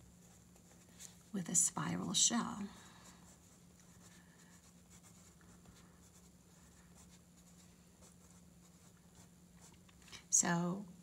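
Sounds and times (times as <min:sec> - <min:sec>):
faint low hum: 0:00.0 - 0:11.0
pencil scratching on paper: 0:03.3 - 0:09.8.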